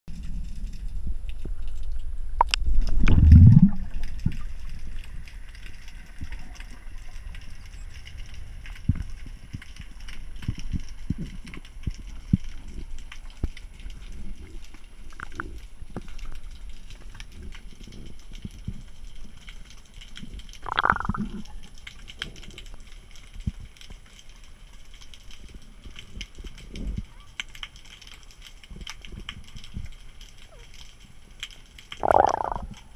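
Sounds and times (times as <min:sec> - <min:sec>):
underwater rush of water: 0:00.1 - 0:19.6, 0:20.2 - 0:22.8, 0:31.8 - 0:32.9
crackle of faint clicks: 0:00.1 - 0:32.9
gurgling burst: 0:03.0 - 0:04.1, 0:20.6 - 0:21.4, 0:32.0 - 0:32.8
faint ticks: 0:04.0 - 0:32.9
surge of moving water: 0:32.0 - 0:32.9.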